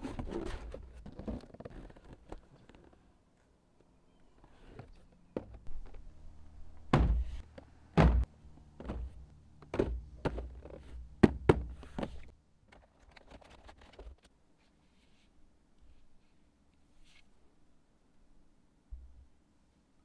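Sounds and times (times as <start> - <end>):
heavy deep thuds: 6.9 - 7.4, 8.0 - 9.2.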